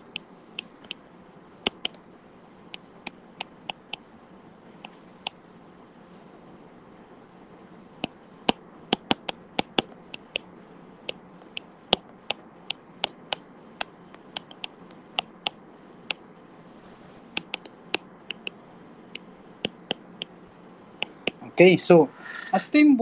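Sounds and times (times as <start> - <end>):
stylus tapping on tablet screen: 1.6 - 2.0, 8.0 - 10.4, 11.1 - 15.6, 17.4 - 18.5.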